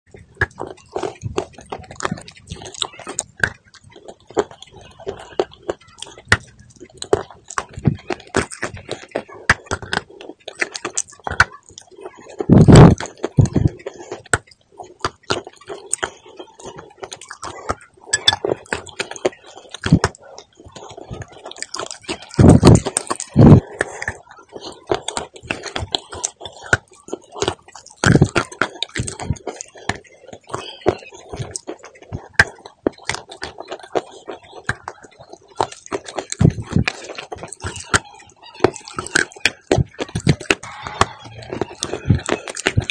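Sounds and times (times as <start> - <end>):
crisp chewing crunches: 0.1 - 42.9.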